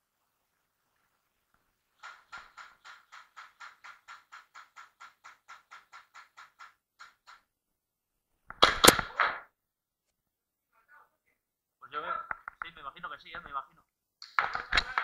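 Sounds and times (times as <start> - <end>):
clatter of sharp knocks: 2.0 - 7.5
fast even clicking: 2.0 - 7.5.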